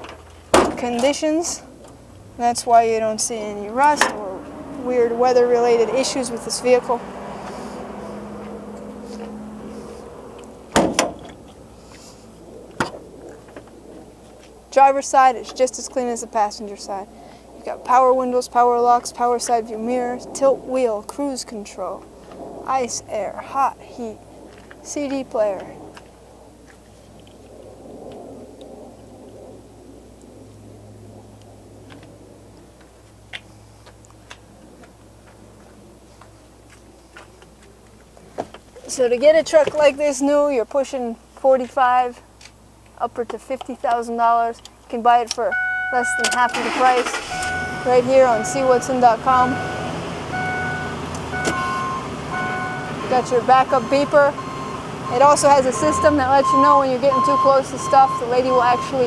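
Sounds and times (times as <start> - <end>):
low steady hum: 0.0 - 59.0
metal door slamming: 10.7 - 11.4.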